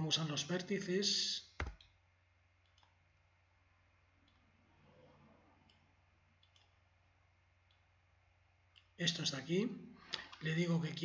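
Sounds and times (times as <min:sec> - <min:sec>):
faint computer mouse clicks: 0:02.6 - 0:03.0.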